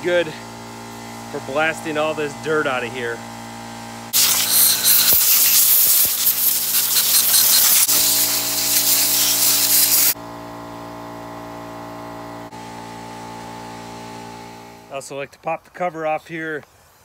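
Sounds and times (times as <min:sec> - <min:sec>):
compressed air hissing from blow gun: 0:04.1 - 0:10.2.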